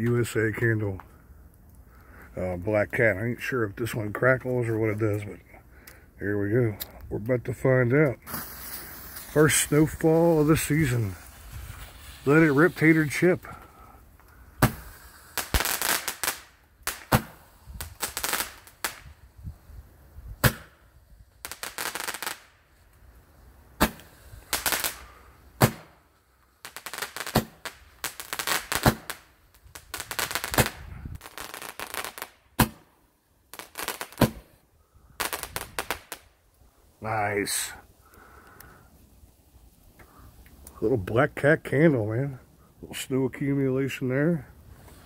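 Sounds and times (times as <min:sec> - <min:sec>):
rapid firework crackling: 0:08.2 - 0:19.3, 0:20.3 - 0:22.6, 0:23.7 - 0:34.6, 0:35.2 - 0:36.4
roman candle pops: 0:14.6 - 0:14.8, 0:20.4 - 0:20.7.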